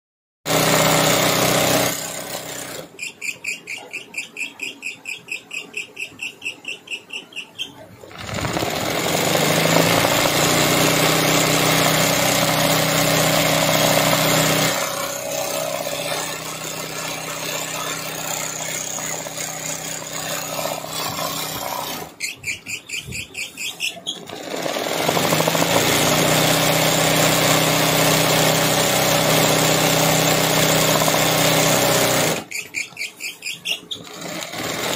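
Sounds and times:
sewing machine running: 0:00.5 - 0:03.0, 0:08.1 - 0:22.2, 0:24.2 - 0:32.6, 0:33.9 - 0:34.9.

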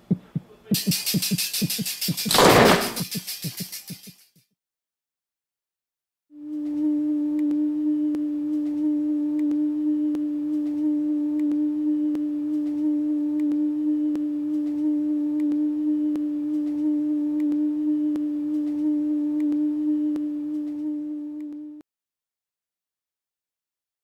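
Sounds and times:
steady pure drone tone: 0:06.4 - 0:21.8.

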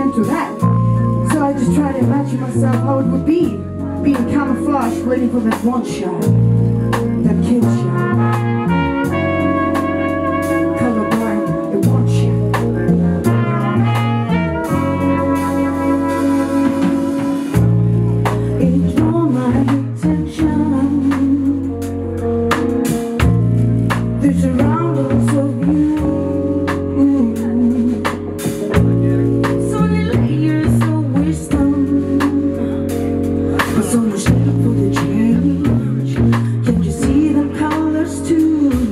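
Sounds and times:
bass line: 0:00.0 - 0:38.9
drum kit: 0:00.0 - 0:38.9
saxophone melody: 0:06.6 - 0:33.6
trumpet melody: 0:06.6 - 0:35.4.

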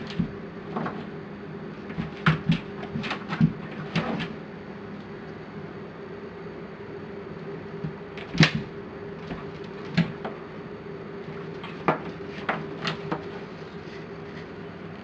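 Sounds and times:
paws and jaws knocking and snapping: 0:00.0 - 0:01.1, 0:01.9 - 0:04.4, 0:07.8 - 0:10.4, 0:11.5 - 0:13.4
low steady hum: 0:00.0 - 0:15.0.

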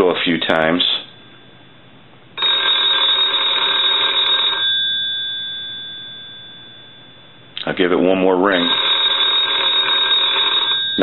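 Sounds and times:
telephone bell ringing: 0:02.4 - 0:07.6, 0:08.5 - 0:11.0.

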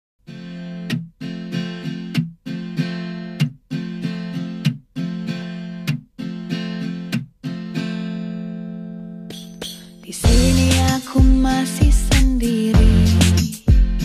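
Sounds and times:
strummed acoustic guitar chords: 0:00.2 - 0:14.0.

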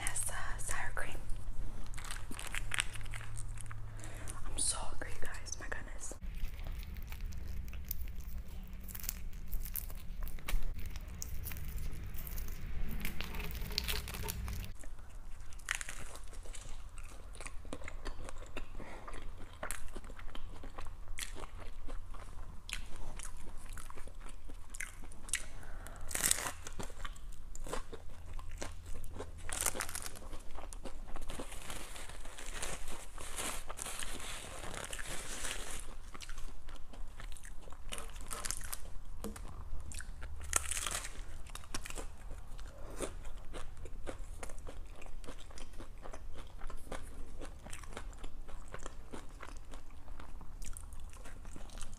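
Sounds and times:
taco shell crunching: 0:01.6 - 0:04.2, 0:06.2 - 0:51.9
paper wrapper crinkling: 0:01.6 - 0:04.3, 0:06.2 - 0:14.8, 0:31.3 - 0:36.0.

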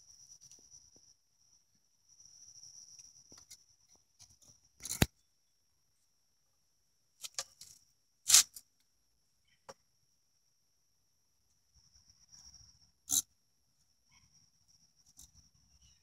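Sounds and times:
faint high-pitched whine: 0:00.0 - 0:16.0
hive tool prying and scraping: 0:04.8 - 0:05.1.

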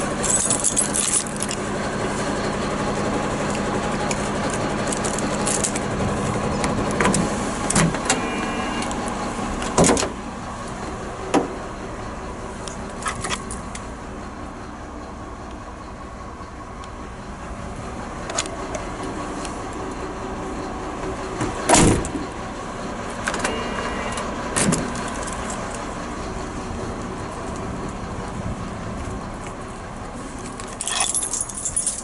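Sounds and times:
loud door clunk: 0:06.9 - 0:08.4, 0:09.6 - 0:10.2, 0:21.4 - 0:22.2.

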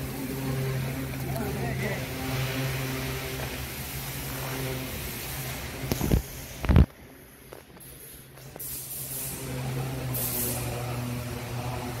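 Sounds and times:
diesel engine humming: 0:00.0 - 0:06.0
hiss bursts: 0:01.8 - 0:12.0.

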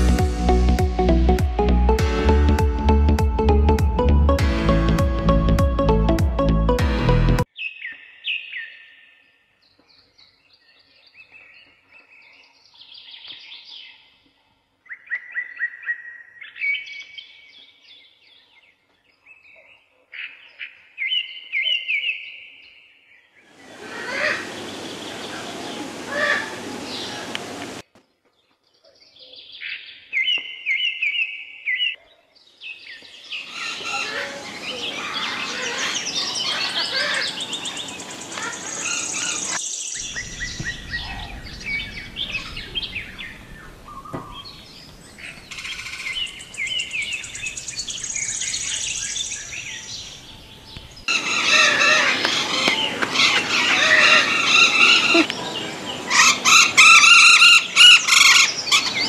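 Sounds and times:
parrots and birds chirping: 0:23.4 - 0:27.3, 0:28.9 - 0:59.0.

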